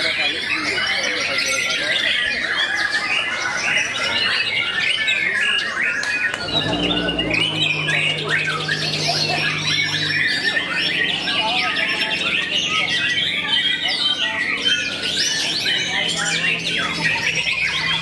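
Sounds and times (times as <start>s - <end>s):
birds singing: 0.0s - 18.0s
steady low hum: 6.4s - 18.0s.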